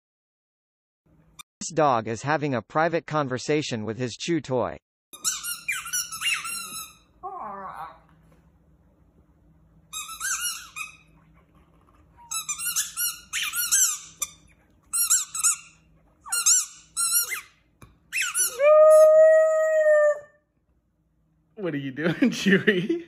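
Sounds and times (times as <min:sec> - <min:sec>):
rubber squeaky toy squeaking: 0:05.2 - 0:07.1, 0:09.9 - 0:11.2, 0:12.2 - 0:18.6
dog whining: 0:05.6 - 0:08.3, 0:10.2 - 0:20.4.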